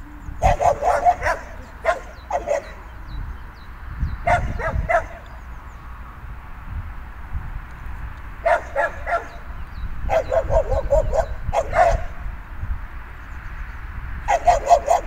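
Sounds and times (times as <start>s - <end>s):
dog barking: 0.4s - 2.9s, 4.2s - 5.3s, 8.4s - 9.4s, 10.1s - 12.2s, 14.3s - 15.0s.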